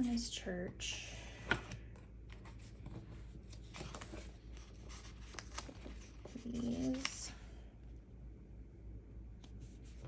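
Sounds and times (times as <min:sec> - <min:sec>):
paper rustling: 0:01.5 - 0:07.3.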